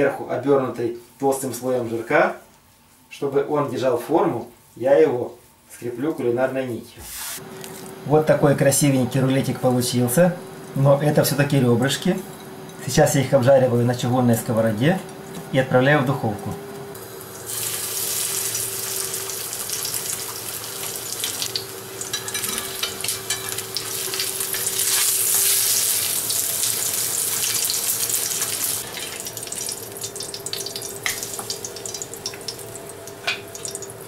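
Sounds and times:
meat sizzling in oil: 0:16.9 - 0:34.0.

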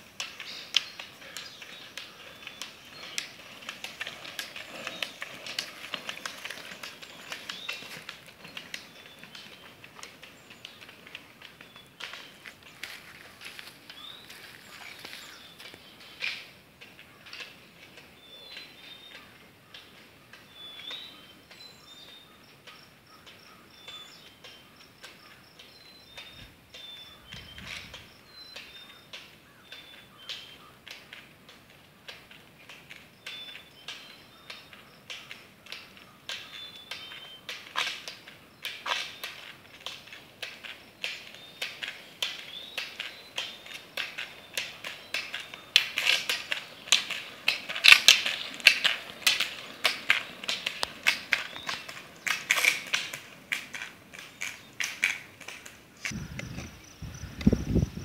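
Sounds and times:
ski pole tips clicking on asphalt: 0:00.0 - 0:20.5, 0:21.5 - 0:56.6
bird chirping: 0:18.2 - 0:30.8, 0:49.5 - 0:52.5.

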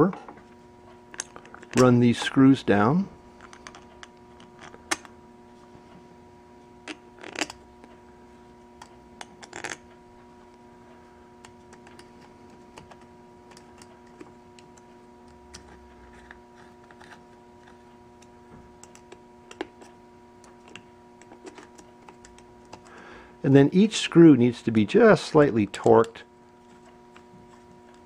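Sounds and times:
faint hum: 0:00.0 - 0:28.0.

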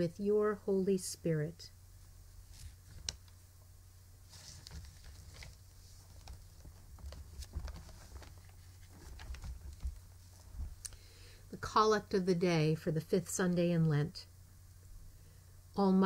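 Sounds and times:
low steady hum: 0:00.0 - 0:16.0
paper rustle: 0:02.5 - 0:03.2, 0:04.2 - 0:10.8.

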